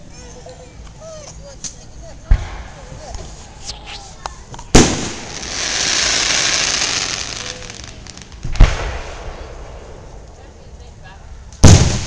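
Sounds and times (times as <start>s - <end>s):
fireworks hiss: 2.1s - 10.2s
fireworks bangs: 2.3s - 10.2s, 11.6s - 12.0s.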